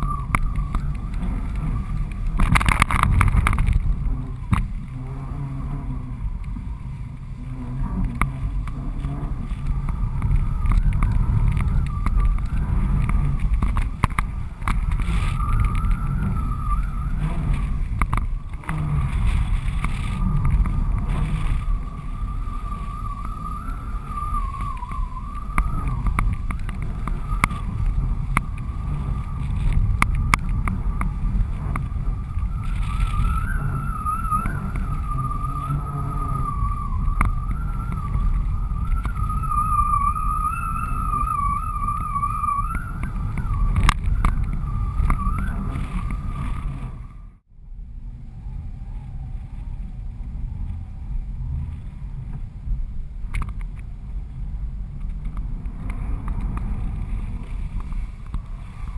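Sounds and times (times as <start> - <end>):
thin wavering whistle: 0.0 - 3.6, 8.4 - 47.4
scattered clicks: 0.0 - 4.9
wind buffeting camera: 0.0 - 58.9.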